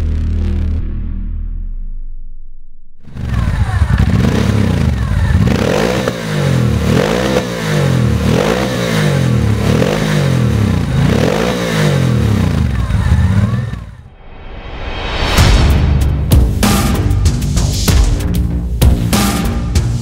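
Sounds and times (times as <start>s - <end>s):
motorcycle engine revving: 3.0s - 14.1s.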